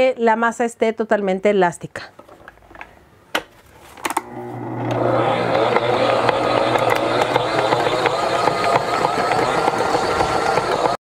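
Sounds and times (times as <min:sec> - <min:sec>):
stand mixer motor running: 0:04.2 - 0:11.0
dough hook knocking: 0:05.4 - 0:11.0.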